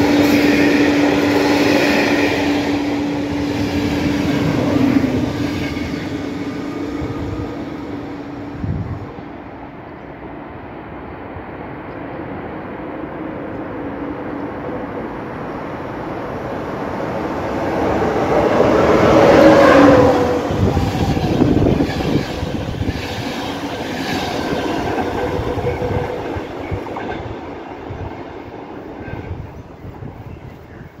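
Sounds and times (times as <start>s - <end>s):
passenger train passing: 0.0s - 31.0s.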